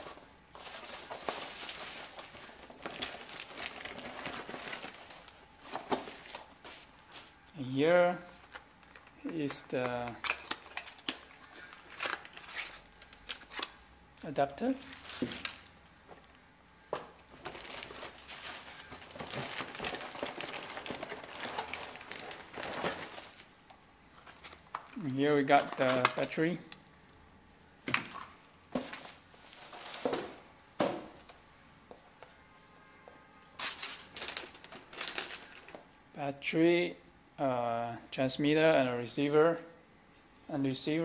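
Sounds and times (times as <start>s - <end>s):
packaging rustling and crinkling: 0.0s - 7.5s, 8.2s - 13.8s, 14.6s - 16.4s, 17.2s - 23.5s, 24.1s - 27.2s, 28.7s - 31.4s, 33.6s - 35.9s.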